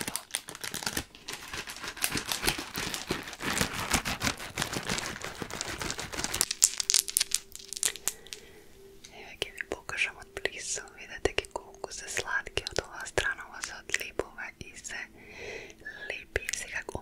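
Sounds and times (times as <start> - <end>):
plastic bag crinkling: 0.0 - 8.4
small plastic pieces rattling: 0.0 - 8.4.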